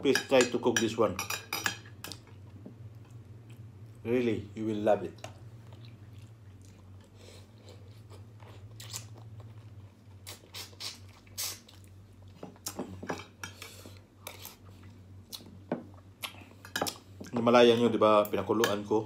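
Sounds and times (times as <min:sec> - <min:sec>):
steady low hum: 0:00.0 - 0:19.0
cutlery on glass dish: 0:00.1 - 0:02.2
close-up chewing: 0:05.6 - 0:12.7.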